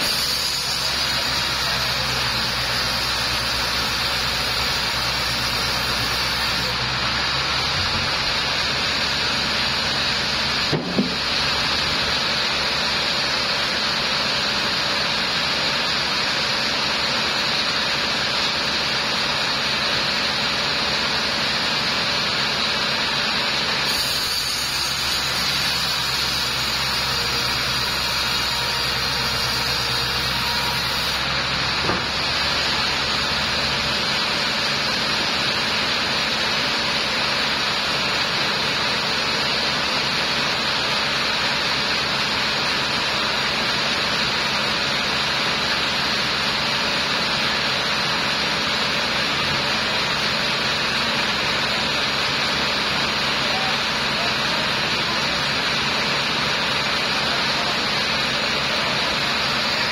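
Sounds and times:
band saw ripping a log: 0.0 - 6.8, 23.8 - 32.5
single knock: 10.7 - 11.2.

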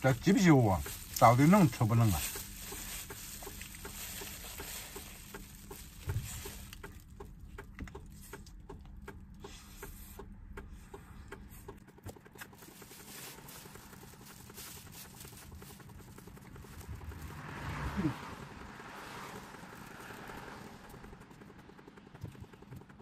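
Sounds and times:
plastic bag crinkling: 0.0 - 7.1, 12.4 - 17.4.

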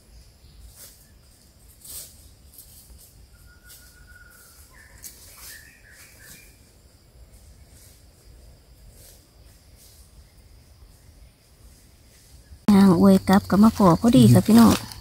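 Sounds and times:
dry leaves rustling: 0.6 - 6.6, 12.3 - 15.0.

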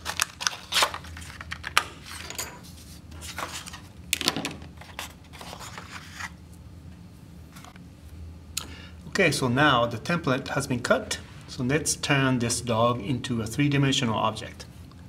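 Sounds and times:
stiff paper rustling: 0.0 - 1.7, 4.8 - 6.4.

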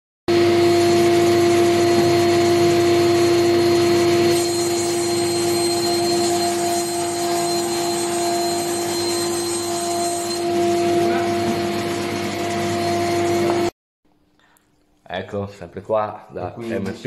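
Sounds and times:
panel saw running: 0.3 - 13.7
saw blade cutting wood panel: 0.3 - 13.7.

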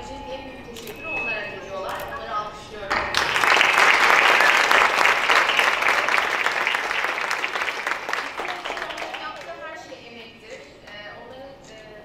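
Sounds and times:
audience applauding: 3.1 - 9.6.

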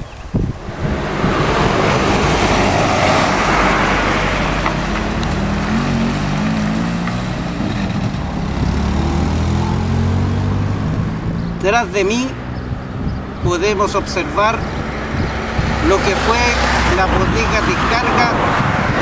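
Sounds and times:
low engine hum: 0.4 - 11.6
vehicle passing close by: 0.4 - 19.0.

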